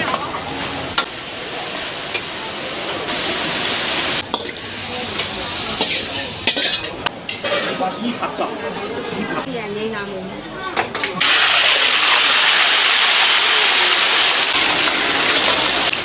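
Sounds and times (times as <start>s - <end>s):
greens sizzling in a wok: 0.0s - 7.7s, 11.2s - 16.0s
metal ladle clacking on wok: 5.2s - 7.6s.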